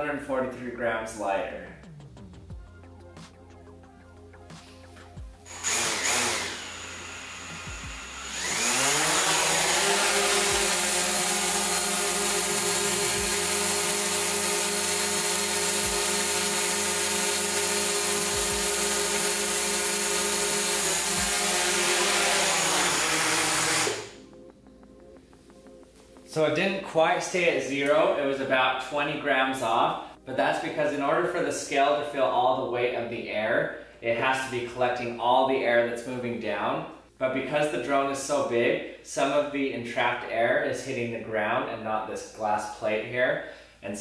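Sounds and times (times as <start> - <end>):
drone propellers buzzing: 5.5 - 13.8.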